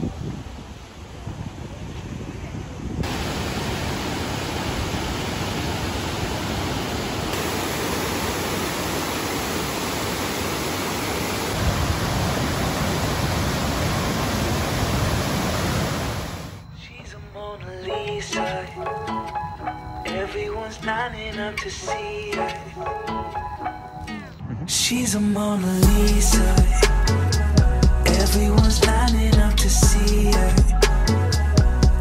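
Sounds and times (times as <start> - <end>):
waterfall rushing: 3.0 - 16.6.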